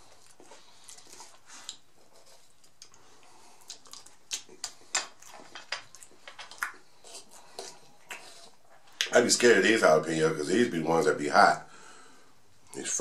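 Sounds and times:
chewing and lip-smacking: 0:00.0 - 0:09.1.

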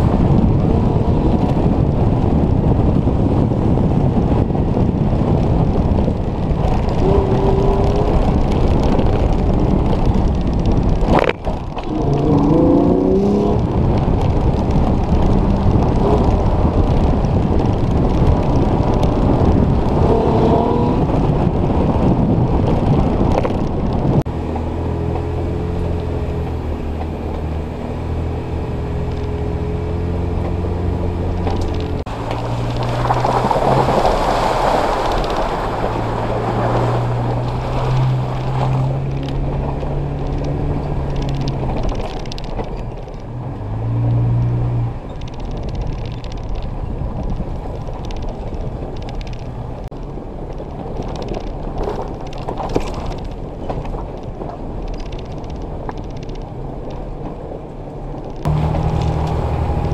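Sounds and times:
rushing tyre and brush noise: 0:00.0 - 0:59.9
vehicle engine revving: 0:06.4 - 0:17.5, 0:18.3 - 0:21.4, 0:58.4 - 0:59.9.

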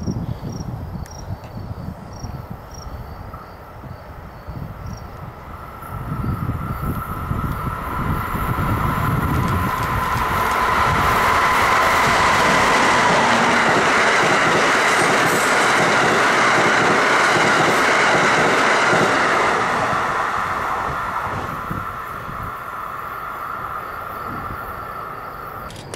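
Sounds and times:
train wheels running on rails: 0:05.2 - 0:25.9.

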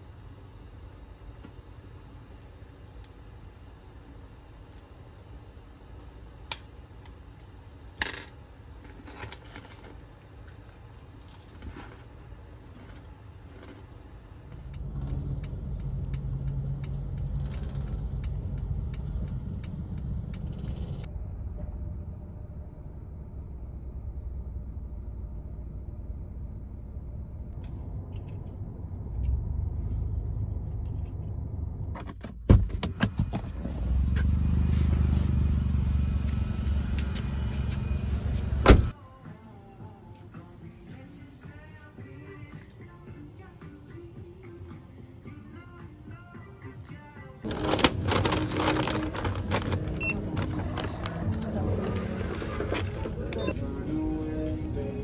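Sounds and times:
low rumble: 0:14.6 - 0:32.0, 0:47.5 - 0:55.0.

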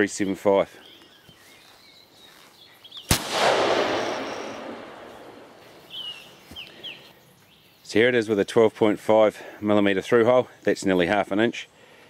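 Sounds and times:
rifle shot echoing: 0:03.1 - 0:06.3.

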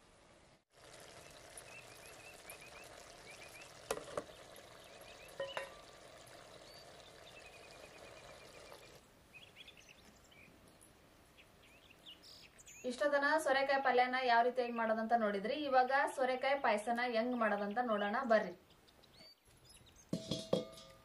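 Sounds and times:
food bubbling in a pot: 0:00.7 - 0:09.1
birds chirping: 0:01.0 - 0:13.1, 0:16.3 - 0:20.3.

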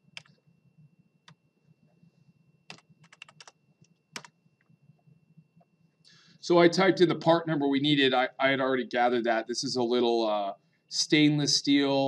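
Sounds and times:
keyboard typing: 0:00.1 - 0:00.4, 0:02.7 - 0:04.8.

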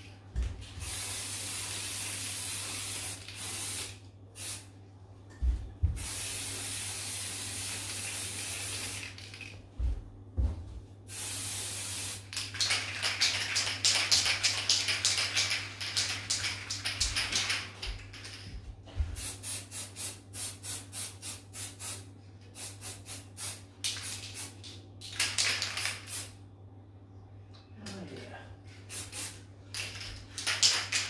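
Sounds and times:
spray can hissing: 0:00.8 - 0:04.7, 0:06.0 - 0:09.4, 0:11.1 - 0:17.6, 0:19.2 - 0:22.0, 0:22.6 - 0:24.6, 0:28.9 - 0:31.0.

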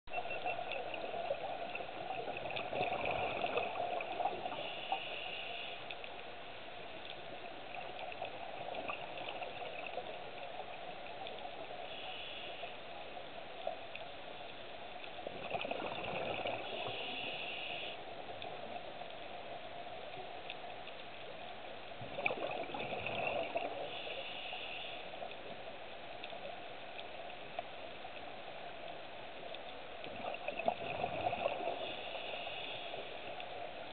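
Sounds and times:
exhaled bubbles rushing: 0:00.1 - 0:04.6, 0:15.3 - 0:16.9, 0:22.0 - 0:23.8, 0:30.1 - 0:31.9
regulator low hiss: 0:04.0 - 0:07.4, 0:11.4 - 0:13.2, 0:16.6 - 0:18.8, 0:23.8 - 0:25.7, 0:31.6 - 0:33.9.

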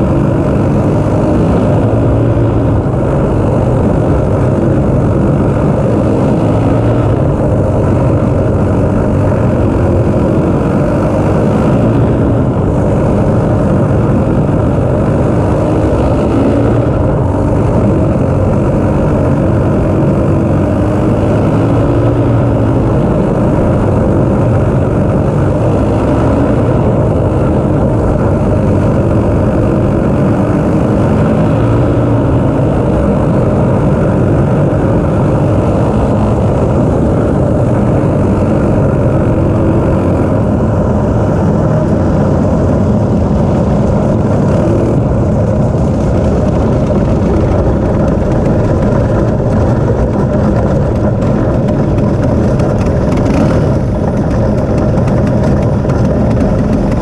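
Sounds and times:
go kart engine running hard: 0:00.0 - 0:57.0.

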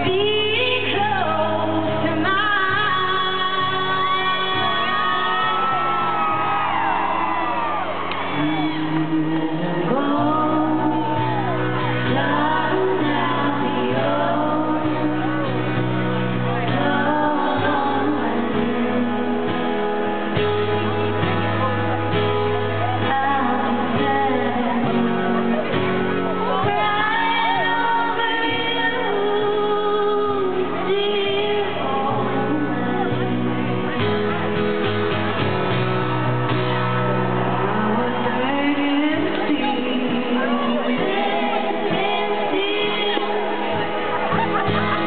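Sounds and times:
women singing into microphones: 0:00.0 - 0:19.9, 0:22.8 - 0:34.1, 0:37.5 - 0:45.0
acoustic guitar: 0:00.0 - 0:45.0
country band playing: 0:00.0 - 0:45.0
audience shouting and whooping: 0:04.2 - 0:13.6, 0:25.0 - 0:28.9, 0:35.3 - 0:45.0.

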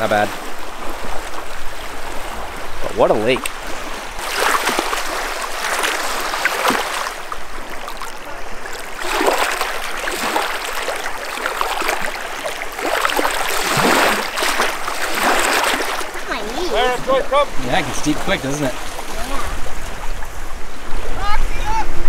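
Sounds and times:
lake water lapping at shore: 0:00.0 - 0:22.0.

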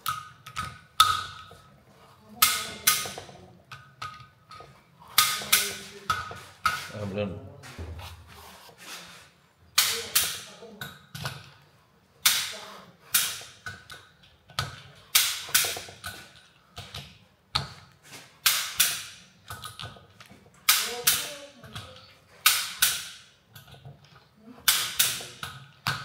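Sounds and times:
hand tools clicking and knocking: 0:00.0 - 0:07.0, 0:12.2 - 0:17.8, 0:18.4 - 0:26.0.

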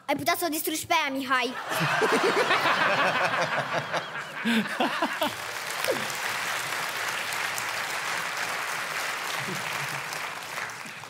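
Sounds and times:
audience laughing: 0:01.5 - 0:06.2, 0:09.1 - 0:10.9
audience applauding: 0:01.6 - 0:11.0.

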